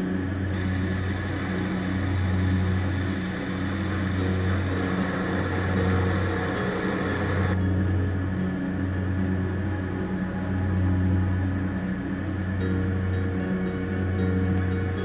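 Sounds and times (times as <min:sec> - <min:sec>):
exhaust fan humming: 0:00.0 - 0:15.0
torch flame rushing: 0:00.6 - 0:07.6.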